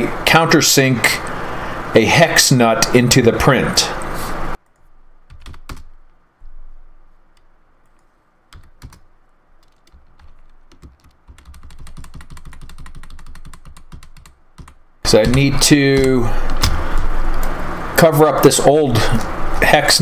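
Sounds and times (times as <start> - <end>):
computer keyboard typing: 4.7 - 6.1, 7.4 - 16.8.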